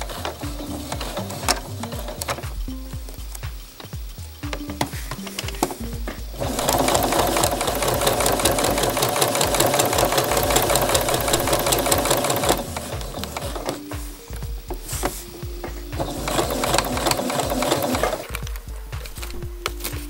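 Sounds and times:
sewing machine stitching: 6.4s - 13.8s, 16.0s - 18.3s.

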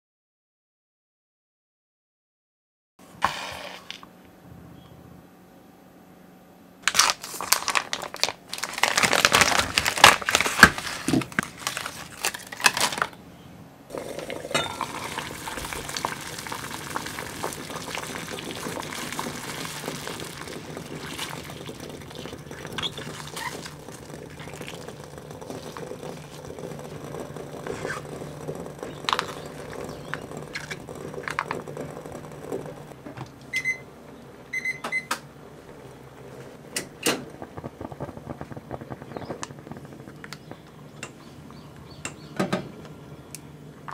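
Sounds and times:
plastic pouches crinkling: 6.9s - 13.2s
gas burner hiss: 36.4s - 41.4s.

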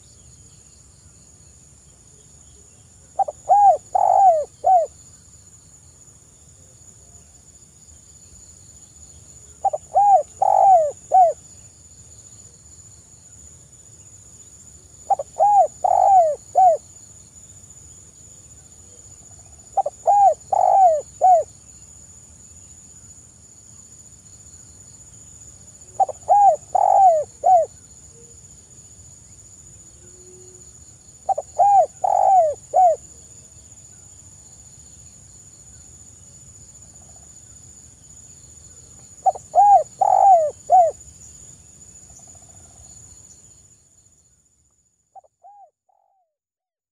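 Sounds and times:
high insect drone: 0.0s - 45.2s
dove cooing: 3.2s - 4.9s, 9.6s - 11.4s, 15.1s - 16.8s, 19.8s - 21.5s, 25.9s - 27.7s, 31.3s - 33.1s, 39.2s - 41.0s.

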